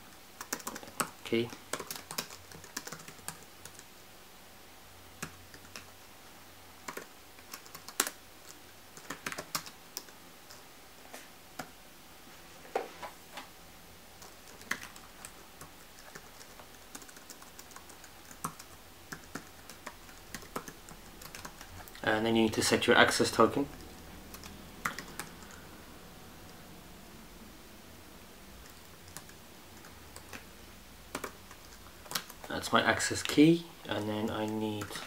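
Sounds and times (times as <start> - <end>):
computer keyboard typing: 0.4 - 3.9, 5.2 - 6.0, 6.8 - 10.6, 14.2 - 22.0, 23.1 - 25.7, 28.6 - 30.5, 31.1 - 32.6, 33.9 - 35.0.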